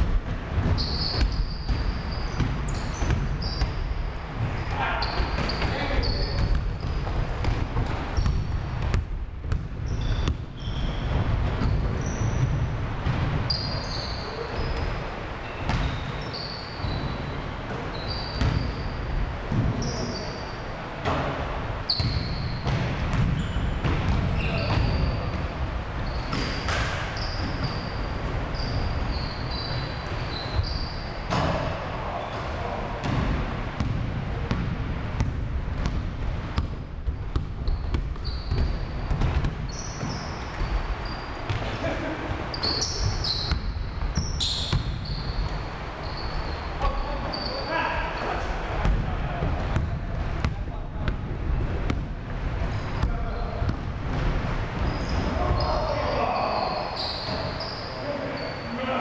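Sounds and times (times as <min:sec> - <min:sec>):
basketball bouncing on wooden floor: 0:00.0 - 0:13.7, 0:18.2 - 0:18.8, 0:21.9 - 0:25.4, 0:33.0 - 0:41.7
sneakers squeaking: 0:00.2 - 0:59.0.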